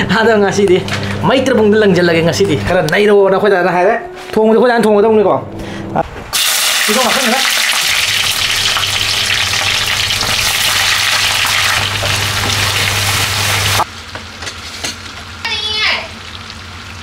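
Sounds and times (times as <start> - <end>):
onions sizzling in hot oil: 6.4 - 13.9.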